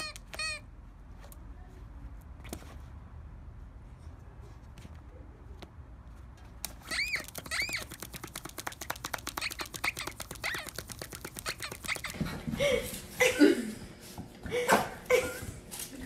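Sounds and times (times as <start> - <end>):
squeaky chirps: 0.0 - 0.6, 6.8 - 8.2, 9.3 - 12.2
short pitched calls: 0.0 - 0.7, 6.8 - 8.2, 9.2 - 12.2
rapid even clicking: 6.6 - 12.2.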